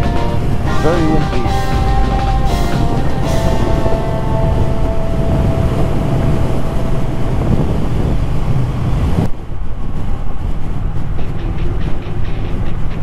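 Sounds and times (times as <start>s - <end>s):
motorcycle engine rumble: 0.0s - 9.5s
wind buffeting microphone: 0.0s - 13.0s.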